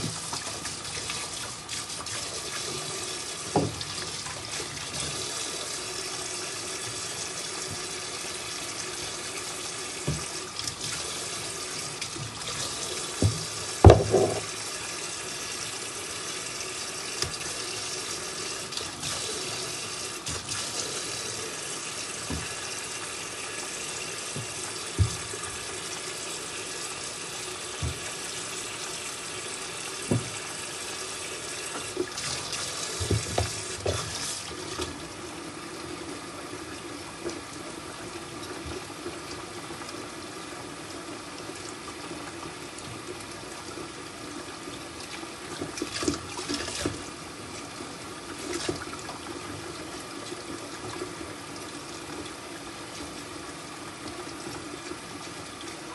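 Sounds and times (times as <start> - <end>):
tap running into sink: 0.0 - 5.4, 10.0 - 11.1, 11.8 - 14.6, 17.2 - 17.6, 22.1 - 22.8, 24.3 - 25.9, 27.7 - 28.4, 30.0 - 30.5, 31.6 - 35.0
short knocks and clunks: 13.2 - 14.5.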